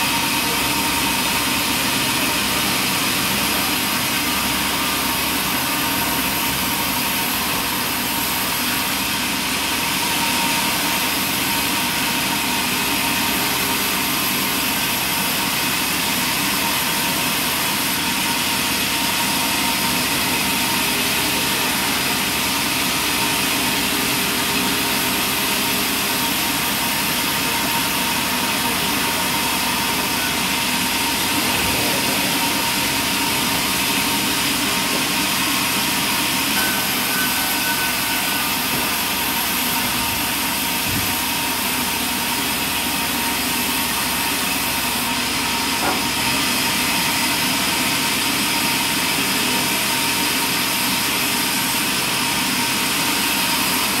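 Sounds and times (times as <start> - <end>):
band sawmill whining: 0.0 - 54.0.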